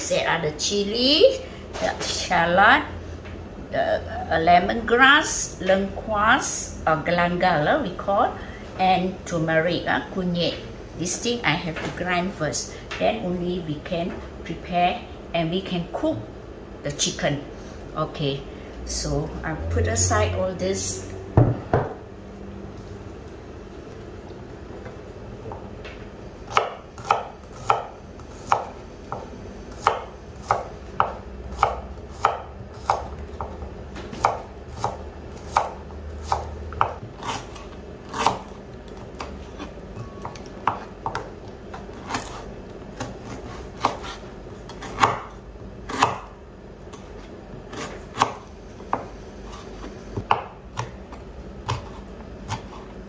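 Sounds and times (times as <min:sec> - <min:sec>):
knife knocking cutting board: 0:21.4 - 0:22.0.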